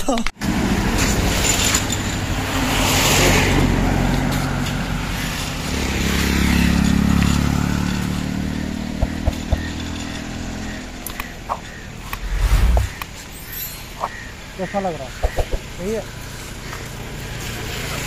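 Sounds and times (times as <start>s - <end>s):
vehicle engine passing: 12.0s - 13.0s.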